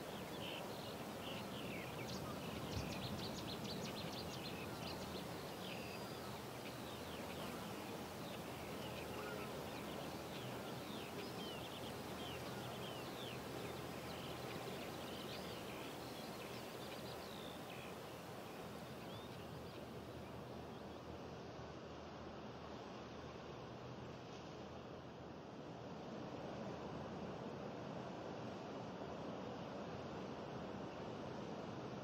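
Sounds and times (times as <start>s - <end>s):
small birds chirping: 0.0s - 21.0s
steady background hiss: 0.0s - 32.0s.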